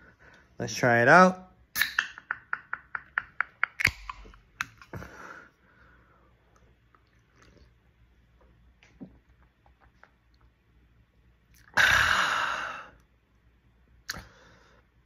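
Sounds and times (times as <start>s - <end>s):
can pull tab cracking open: 3.7s - 4.8s.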